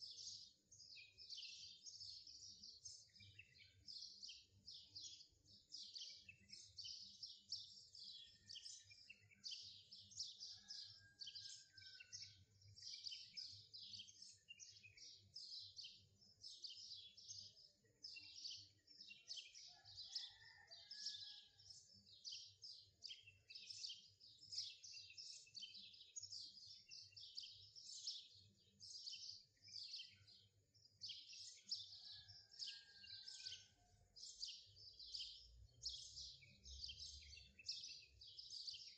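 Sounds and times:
birds chirping: 19.8s - 21.0s.

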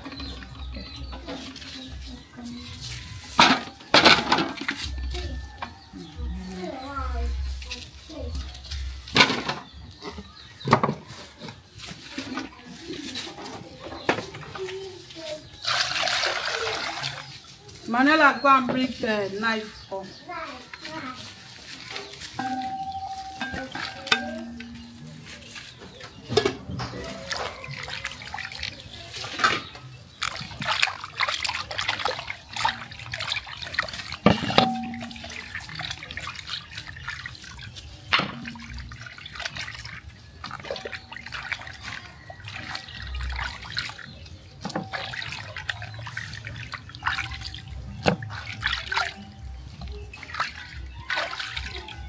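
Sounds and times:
water dripping: 21.7s - 25.6s, 26.4s - 29.4s, 30.2s - 52.0s
hands splashing in water: 26.9s - 29.4s, 30.1s - 52.0s.

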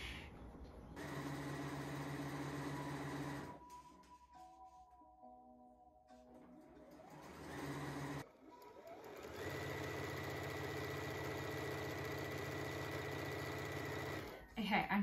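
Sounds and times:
sewing machine stitching: 1.0s - 3.6s, 6.8s - 14.6s.

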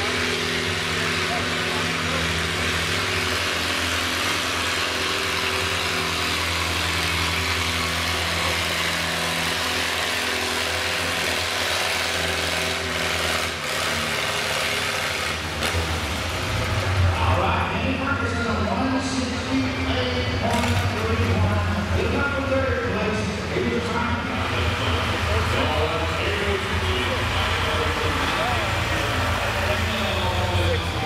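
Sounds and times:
tractor engine running under load: 0.0s - 17.0s, 24.3s - 31.0s.

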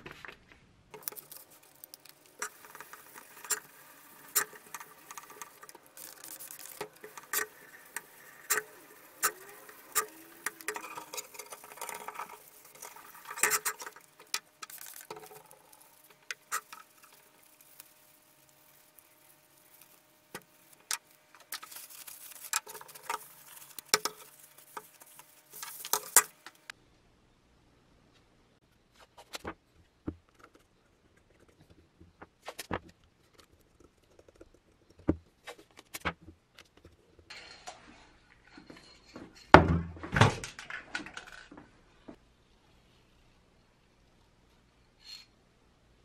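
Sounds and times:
sandpaper scratching on metal: 2.4s - 26.4s.

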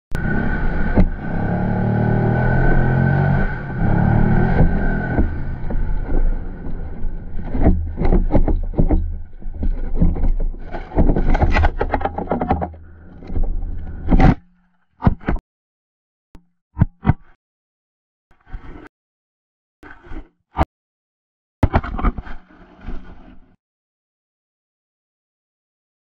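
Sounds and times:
two-stroke dirt bike engine: 0.1s - 9.2s.

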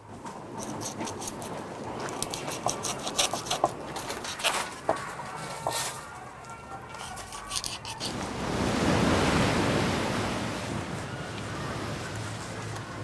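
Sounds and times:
knife cutting fish on board: 2.1s - 4.7s.

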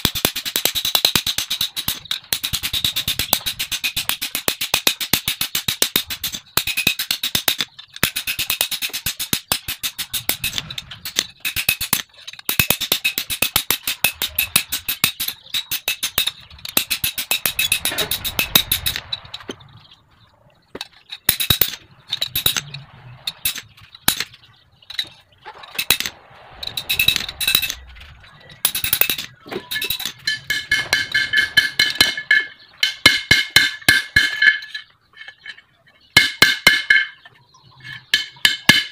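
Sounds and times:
hammer striking metal on anvil: 0.0s - 19.1s, 21.3s - 24.3s, 25.7s - 27.8s, 28.6s - 34.9s, 36.2s - 37.2s, 38.1s - 38.9s.

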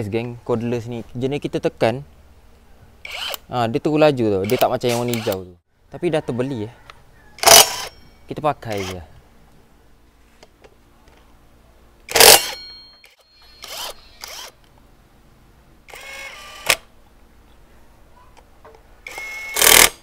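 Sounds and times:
cordless power driver whining: 4.4s - 5.4s, 7.4s - 7.9s, 15.9s - 16.9s, 19.0s - 20.0s.

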